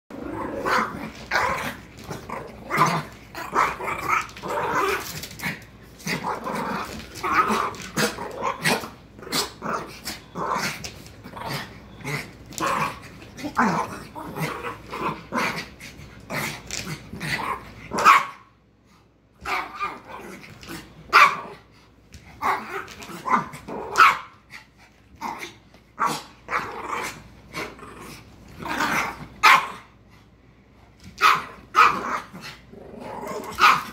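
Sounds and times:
small dogs play-growling: 0.1s - 18.0s, 19.4s - 29.5s, 31.0s - 33.9s.

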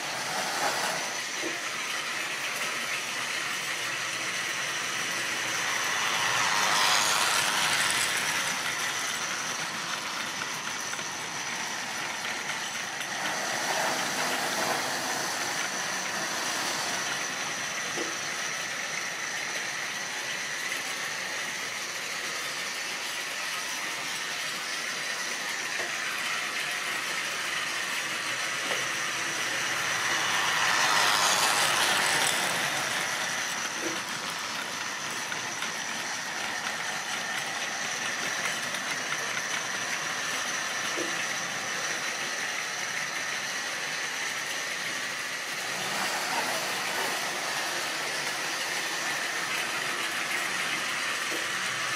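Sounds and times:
model train whirring and rattling: 0.0s - 51.9s.

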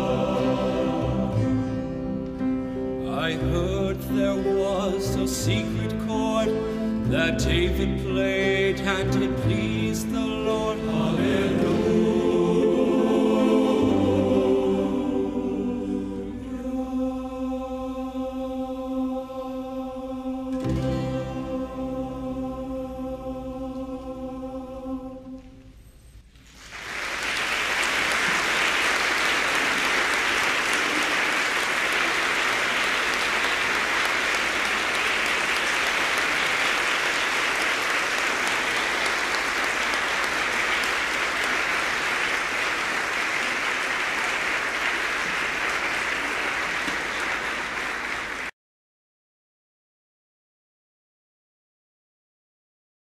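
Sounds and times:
audience applause: 0.0s - 1.5s, 26.5s - 48.5s
men's choir holding a chord: 0.0s - 25.6s.

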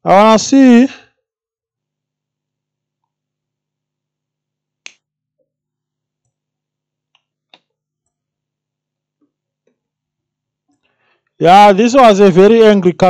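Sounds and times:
sharp clicks and taps: 7.1s - 8.2s.

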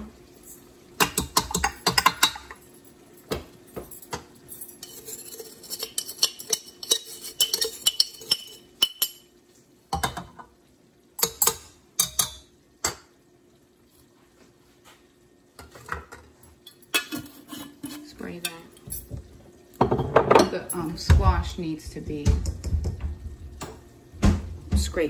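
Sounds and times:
spoon clinking in steel bowl: 4.0s - 9.3s.

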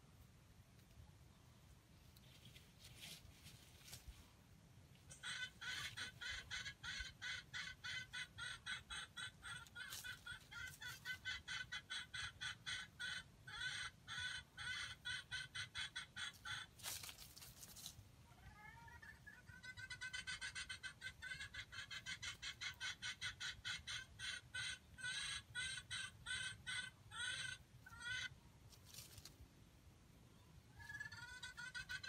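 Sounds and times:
rustling: 1.6s - 5.2s, 9.6s - 11.2s, 16.7s - 18.2s, 28.6s - 29.6s
junglefowl clucking: 5.1s - 17.6s, 18.3s - 28.4s, 30.7s - 32.0s.

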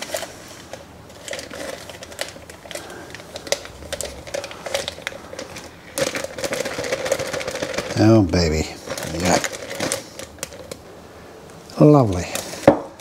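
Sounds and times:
plastic bag crinkling: 0.0s - 11.0s, 11.8s - 13.0s.

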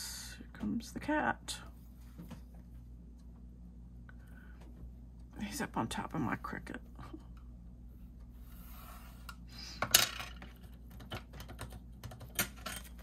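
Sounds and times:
pencil and ruler scraping: 8.5s - 9.3s.

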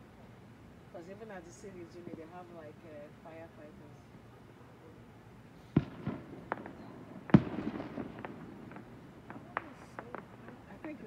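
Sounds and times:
fireworks bangs and pops: 5.7s - 11.0s
rumble: 5.7s - 11.0s.

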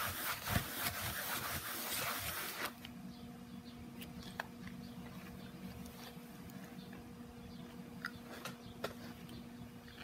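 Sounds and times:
wipe rubbing on canvas: 0.0s - 2.7s
faint steady hum: 0.0s - 10.0s.

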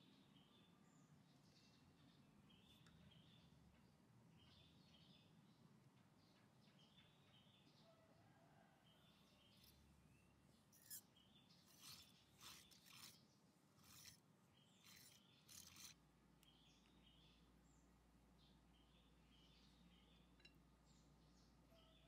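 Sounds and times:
fork scraping ceramic plate: 10.8s - 13.2s, 13.8s - 16.0s.

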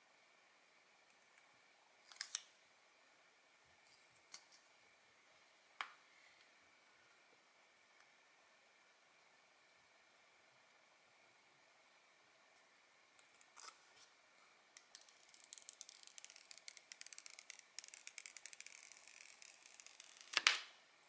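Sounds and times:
protective film peeling off: 15.0s - 20.6s.

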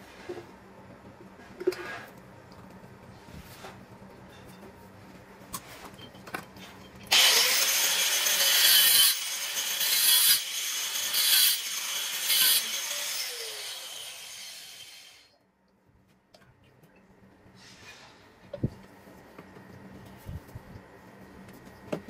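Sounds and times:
angle grinder cutting plastic pipe: 7.1s - 15.3s.

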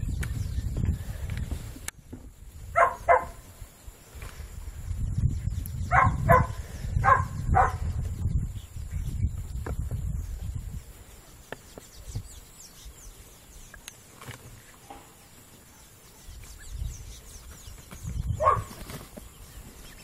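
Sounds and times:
ducks pecking clicks: 13.7s - 14.6s.

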